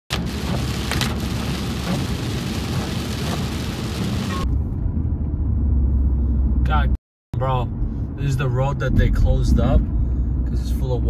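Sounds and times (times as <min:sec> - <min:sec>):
heavy rain on car roof: 0:00.1 - 0:04.4.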